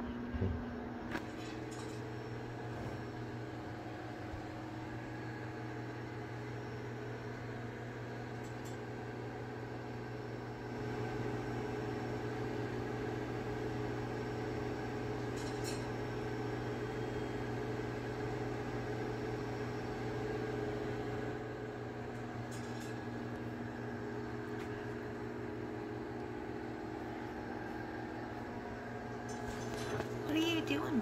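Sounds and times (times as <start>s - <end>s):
machine humming: 15.1s - 31.0s.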